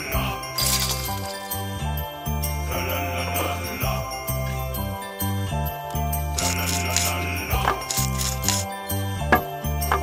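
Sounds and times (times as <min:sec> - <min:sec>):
christmas-style music: 0:00.0 - 0:10.0
sleigh bells ringing: 0:00.0 - 0:10.0.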